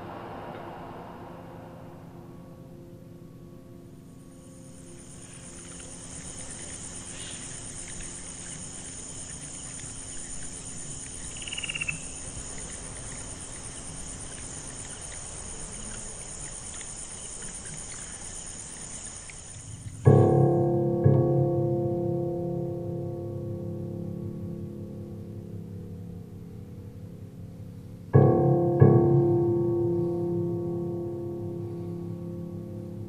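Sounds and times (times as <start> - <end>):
insects trilling: 3.9 - 22.8.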